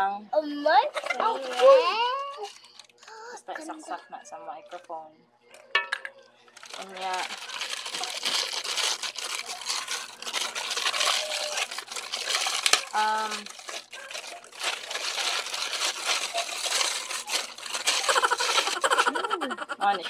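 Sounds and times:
plastic packaging crinkling: 0:00.9 - 0:03.2, 0:06.5 - 0:19.3.

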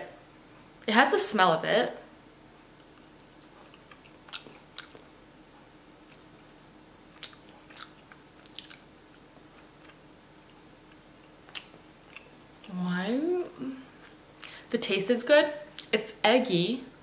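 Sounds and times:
faint steady hum: 0:00.0 - 0:17.0
person chewing soft food: 0:02.6 - 0:12.8.

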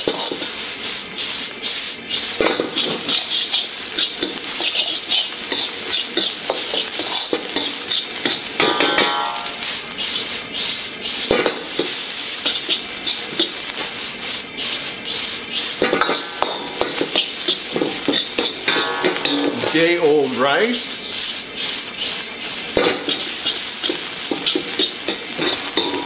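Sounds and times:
rice sizzling in oil: 0:00.0 - 0:26.0
metal ladle scraping wok: 0:14.6 - 0:26.0
ringing metal scrape: 0:18.4 - 0:19.8.

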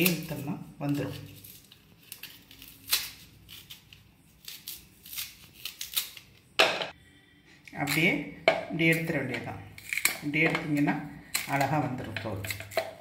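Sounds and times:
knife scraping banana peel: 0:00.0 - 0:06.5.

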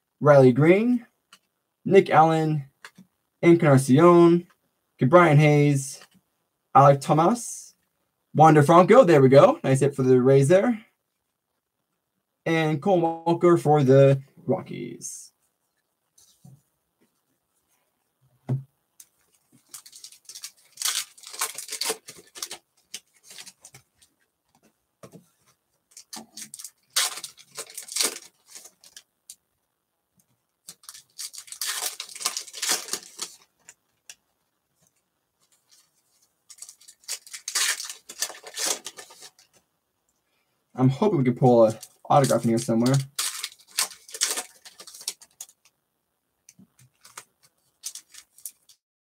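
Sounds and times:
foil wrappers crinkling and tearing: 0:19.5 - 0:24.0, 0:25.9 - 0:29.0, 0:30.7 - 0:34.2, 0:36.5 - 0:39.5, 0:41.7 - 0:45.7, 0:46.9 - 0:48.8.

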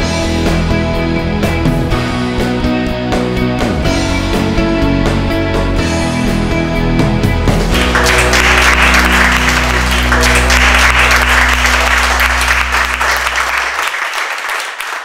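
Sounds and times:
people applauding: 0:07.7 - 0:15.0
held music chord: 0:07.8 - 0:14.4.

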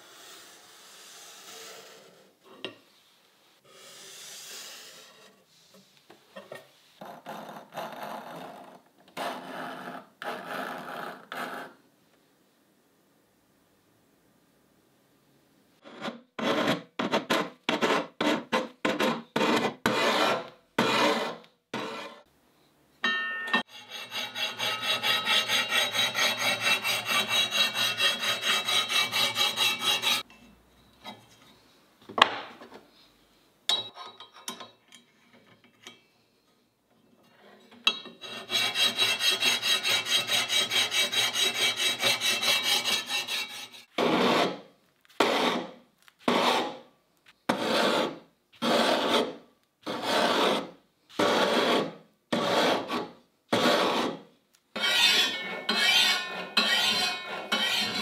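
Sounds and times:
file rasping on steel blade: 0:17.7 - 0:22.3, 0:23.6 - 0:30.3, 0:38.2 - 0:44.6, 0:47.5 - 0:54.2, 0:54.8 - 0:58.0.

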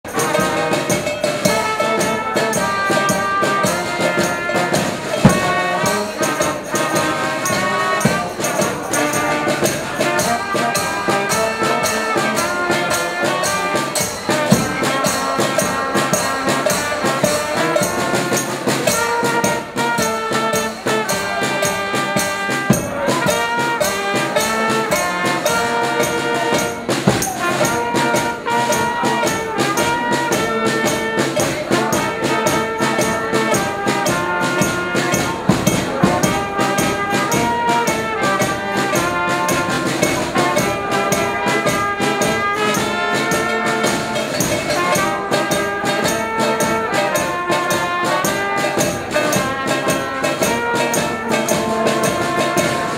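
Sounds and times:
tambourine beat: 0:00.0 - 0:52.9
trumpets playing melody: 0:00.0 - 0:52.9.

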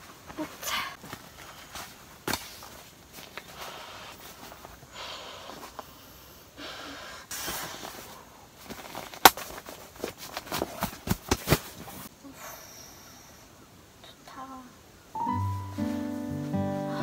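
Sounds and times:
tent fabric rustling: 0:00.0 - 0:05.8, 0:06.9 - 0:12.1.

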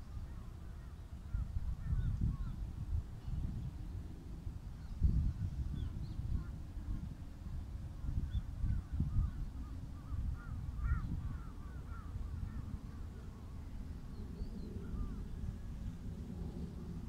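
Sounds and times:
wind rumble on microphone: 0:00.0 - 0:17.0
birds calling: 0:08.3 - 0:13.5.

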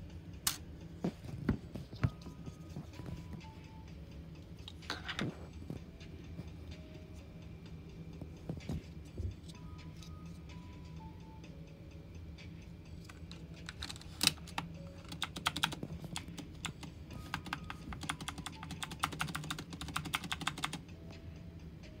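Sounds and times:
faint background music: 0:00.0 - 0:22.0
typing on mechanical keyboard: 0:13.6 - 0:20.8.

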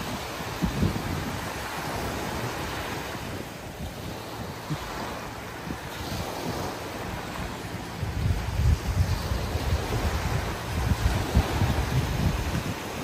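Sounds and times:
sea waves breaking on beach: 0:00.0 - 0:13.0
wind buffeting microphone: 0:00.0 - 0:13.0.

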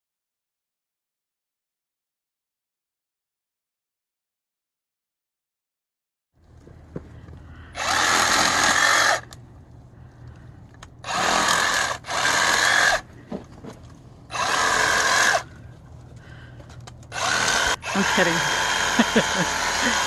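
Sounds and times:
electric saw cutting branches: 0:07.7 - 0:09.4, 0:11.0 - 0:13.1, 0:14.3 - 0:15.6, 0:17.0 - 0:20.0.

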